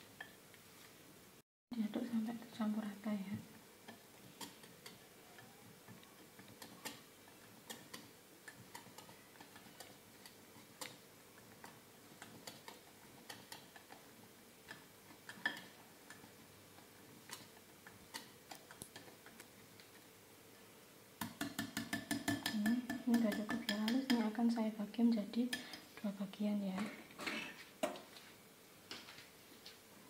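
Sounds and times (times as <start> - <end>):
whisk clicking against glass bowl: 11.6 - 16.3, 21.2 - 24.2.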